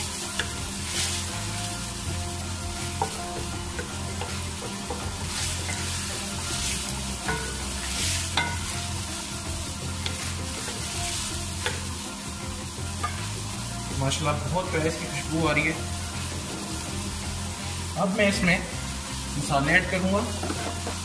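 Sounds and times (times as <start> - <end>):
wooden spoon stirring and scraping: 0.0 - 12.0
vegetables sizzling in oil: 0.0 - 21.0.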